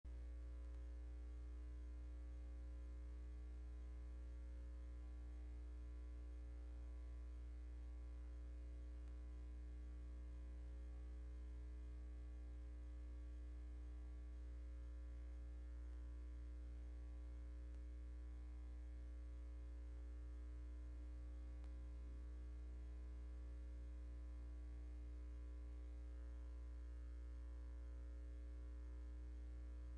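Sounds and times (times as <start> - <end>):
electrical mains hum: 0.1 - 29.9.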